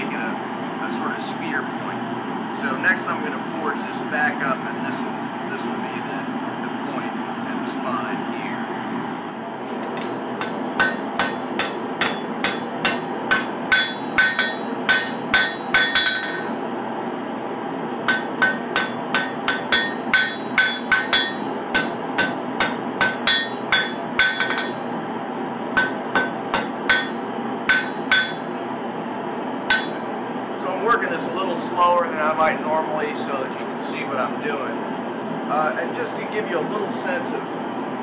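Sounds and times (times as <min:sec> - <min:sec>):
hammer striking blade on anvil: 0:09.9 - 0:16.6, 0:18.1 - 0:24.9, 0:25.8 - 0:28.7, 0:29.7 - 0:30.1.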